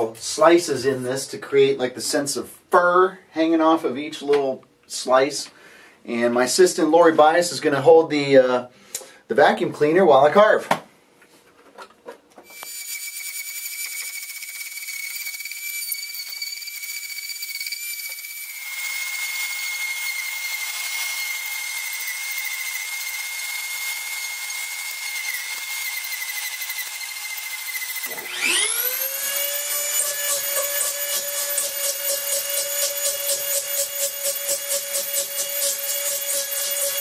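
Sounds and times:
motor spinning up: 0:12.5 - 0:21.0, 0:27.3 - 0:37.0
power carving tool whining: 0:12.5 - 0:37.0
vacuum cleaner running: 0:28.0 - 0:35.7.

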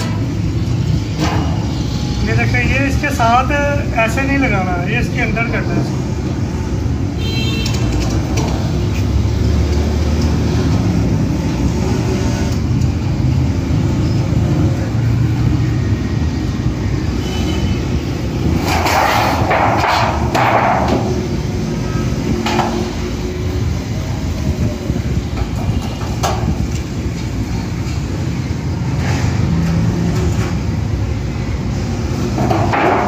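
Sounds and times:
metal clanks and rattles: 0:01.1 - 0:01.8, 0:18.4 - 0:21.5, 0:22.3 - 0:23.2, 0:25.3 - 0:28.0, 0:32.2 - 0:33.0.

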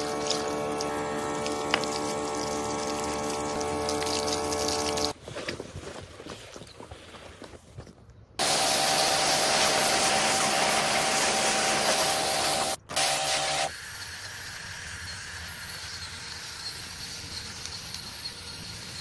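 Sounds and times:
pressure washer machine hum: 0:00.0 - 0:05.2, 0:08.4 - 0:19.0
pressure washer spraying water: 0:00.0 - 0:05.2, 0:08.4 - 0:19.0
thin high tone: 0:13.5 - 0:19.0.

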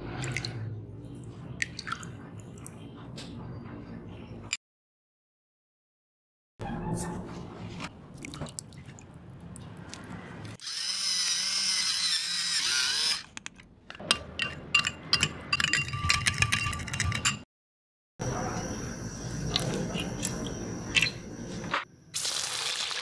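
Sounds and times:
metal spoon clinking on ceramic bowl: 0:14.0 - 0:17.4.

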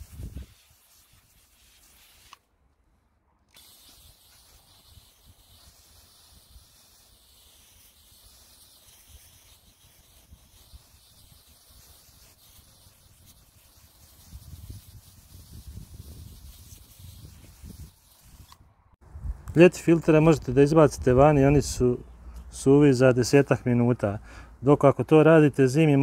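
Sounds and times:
water spray hissing: 0:00.0 - 0:02.4, 0:03.5 - 0:18.6.

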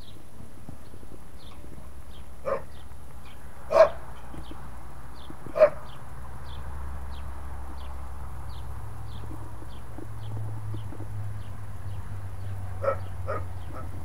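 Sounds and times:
dog barking: 0:02.4 - 0:02.7, 0:03.7 - 0:04.0, 0:05.6 - 0:05.8, 0:12.8 - 0:14.0.

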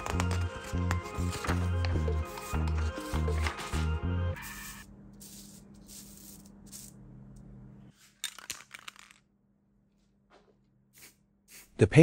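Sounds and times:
spray can ball rattling: 0:04.4 - 0:07.0.

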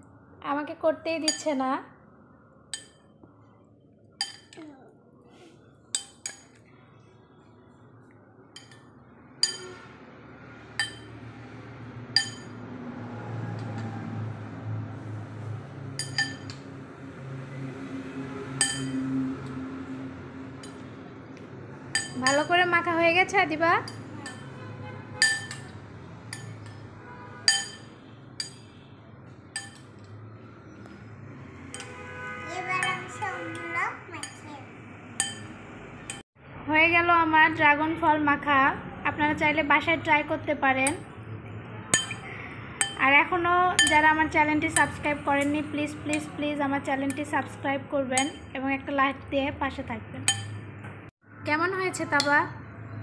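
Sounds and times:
metal spoon clinking on glass bowl: 0:01.3 - 0:01.5, 0:02.7 - 0:03.1, 0:04.2 - 0:04.6, 0:06.0 - 0:06.6, 0:08.6 - 0:09.8, 0:10.8 - 0:11.2, 0:12.2 - 0:12.6, 0:16.0 - 0:16.6, 0:18.6 - 0:19.0, 0:21.9 - 0:22.6, 0:23.8 - 0:24.5, 0:25.2 - 0:26.9, 0:27.5 - 0:28.8, 0:29.6 - 0:30.2, 0:31.7 - 0:32.0, 0:34.2 - 0:34.4, 0:35.2 - 0:36.2, 0:41.9 - 0:43.1, 0:43.8 - 0:46.4, 0:47.0 - 0:47.4, 0:48.2 - 0:48.5, 0:50.2 - 0:50.6.

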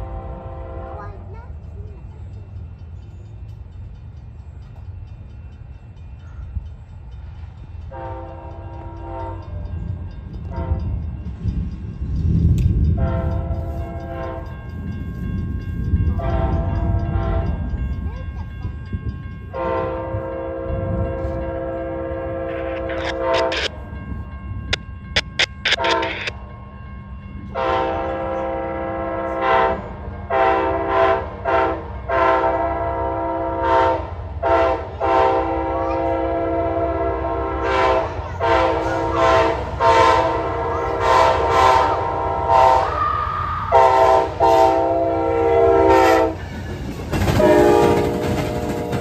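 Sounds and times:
train horn blasts: 0:00.0 - 0:01.2, 0:07.9 - 0:09.7, 0:10.4 - 0:11.2, 0:12.7 - 0:14.6, 0:16.1 - 0:17.8, 0:19.5 - 0:23.9, 0:25.2 - 0:26.4, 0:27.4 - 0:46.6, 0:47.2 - 0:49.0
locomotive engines and wheels rumbling: 0:00.0 - 0:49.0
crossing signal bell dinging: 0:01.4 - 0:30.4.

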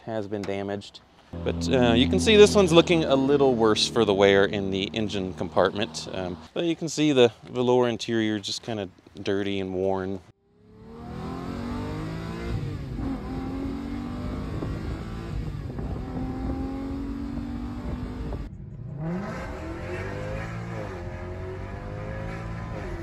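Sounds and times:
car engine revving: 0:01.4 - 0:06.5, 0:10.7 - 0:23.0.

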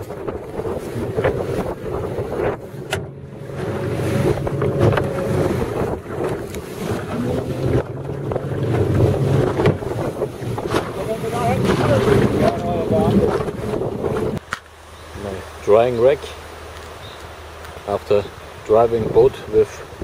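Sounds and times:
wind buffeting microphone: 0:00.0 - 0:14.4
water splashing against hull: 0:00.0 - 0:20.0.

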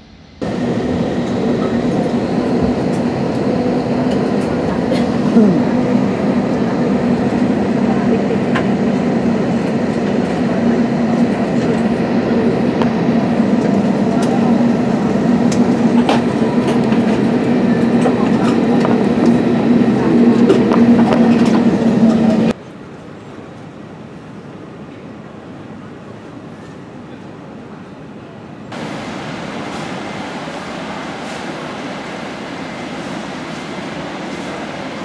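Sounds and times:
vehicle engine drone: 0:00.2 - 0:22.6.

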